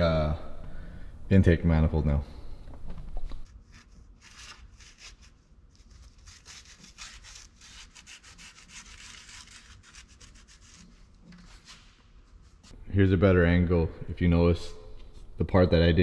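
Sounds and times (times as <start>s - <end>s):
cloth rubbing on rough metal: 3.5s - 12.8s.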